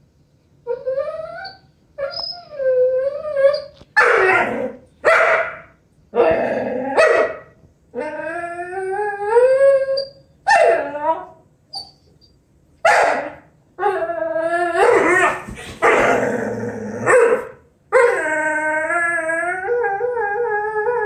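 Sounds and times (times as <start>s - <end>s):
dog whining: 0.7s - 4.8s, 6.2s - 7.4s, 8.0s - 12.4s, 13.0s - 21.0s
dog barking: 4.0s - 5.7s, 7.0s - 7.4s, 12.9s - 13.4s, 17.1s - 17.6s.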